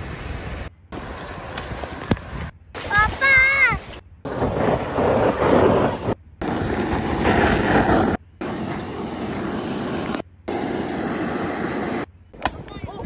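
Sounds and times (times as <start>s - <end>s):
blowtorch flame rushing: 4.3s - 12.1s.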